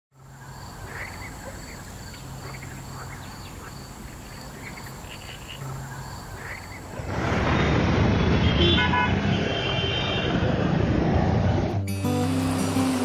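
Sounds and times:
birds chirping: 0.2 - 7.1.

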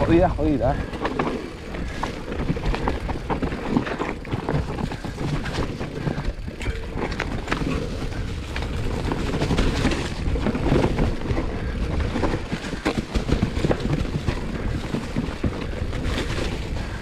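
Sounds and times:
bike clattering and rattling: 0.0 - 17.0
bike tyres rumbling over stones: 0.0 - 17.0.

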